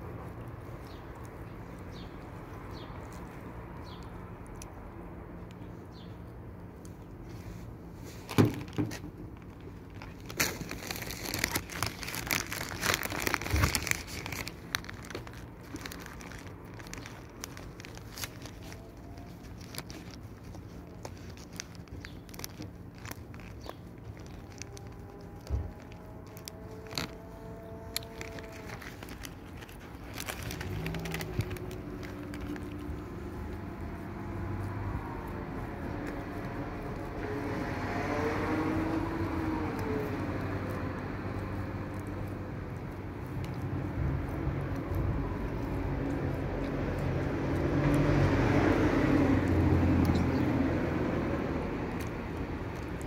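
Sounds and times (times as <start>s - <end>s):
crinkling handling noise: 0.0s - 53.0s
faint vehicle hum: 0.0s - 53.0s.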